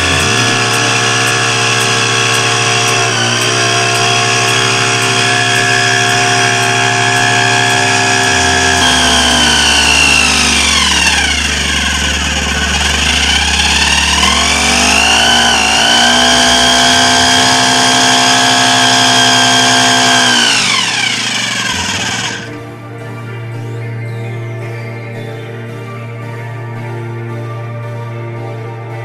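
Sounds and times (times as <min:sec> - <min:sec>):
petrol engine running: 0:00.0 - 0:22.6.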